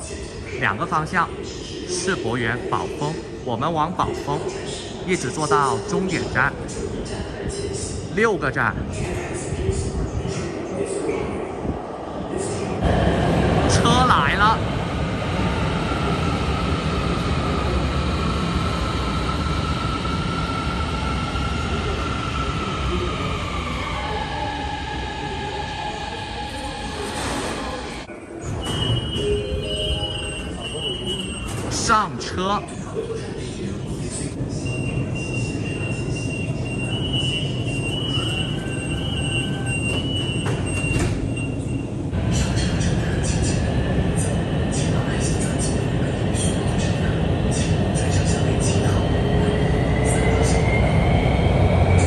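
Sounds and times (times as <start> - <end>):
subway car low rumble: 0.0 - 52.0
train rumble: 32.7 - 52.0.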